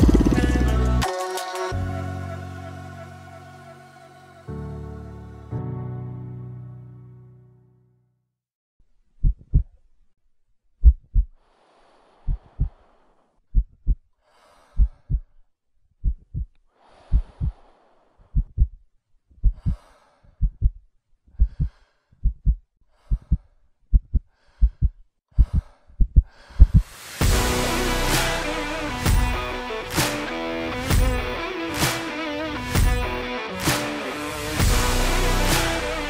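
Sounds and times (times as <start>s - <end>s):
heartbeat thumps: 9.2s - 9.7s, 10.8s - 11.3s, 14.8s - 15.3s, 16.0s - 16.5s, 18.4s - 18.8s, 20.4s - 20.8s, 21.4s - 27.6s
breathing: 11.4s - 13.4s, 14.2s - 15.5s, 16.7s - 18.6s, 19.4s - 20.6s, 21.3s - 27.0s.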